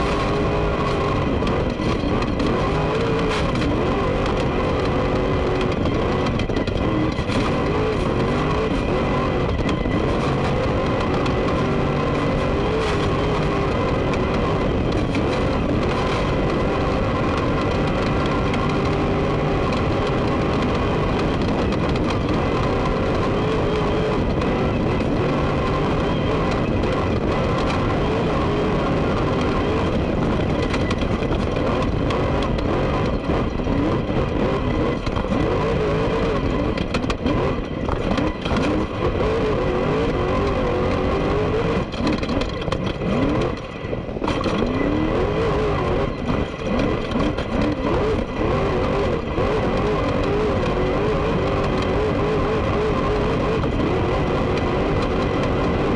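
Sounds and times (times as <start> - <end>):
race car engine: 0.0 - 55.9.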